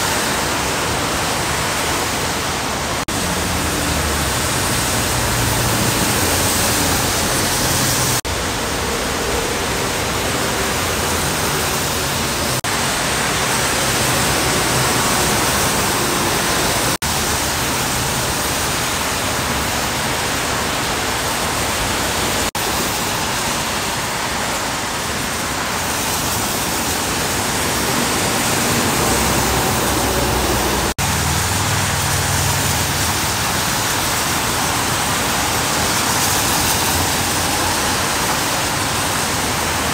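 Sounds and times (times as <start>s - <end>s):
heavy rain hiss: 0.0s - 39.9s
tyres spraying on wet road: 0.0s - 39.9s
low rumble of passing trucks: 27.1s - 33.6s.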